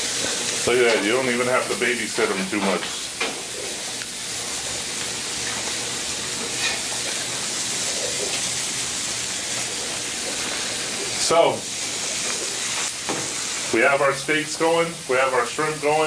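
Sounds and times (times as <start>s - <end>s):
food sizzling on a griddle: 0.0s - 16.0s
spatula scrape on griddle: 6.5s - 7.2s.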